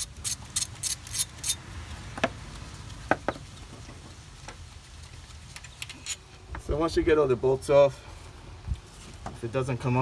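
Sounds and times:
wrench clicking: 0:00.0 - 0:01.6.

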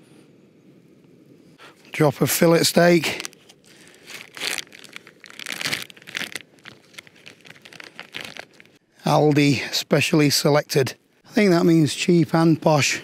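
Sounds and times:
plastic packaging crinkling: 0:02.5 - 0:08.8.

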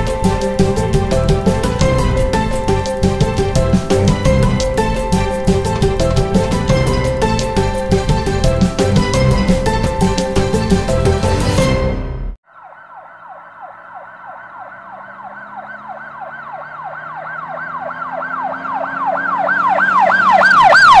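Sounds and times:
music: 0:00.0 - 0:12.4
siren in fast yelp: 0:12.5 - 0:21.0.

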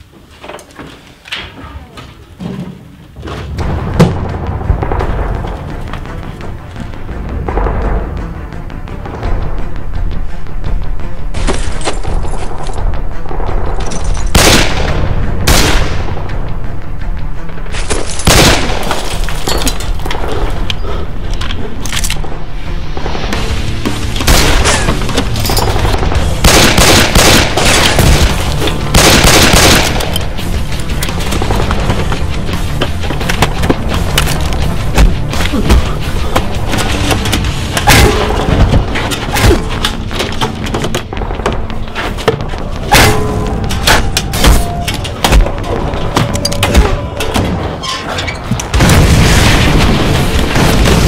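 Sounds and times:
film music: 0:00.0 - 0:51.0
explosion booming: 0:03.5 - 0:06.2, 0:48.7 - 0:51.0
rapid gunfire: 0:25.8 - 0:30.1.

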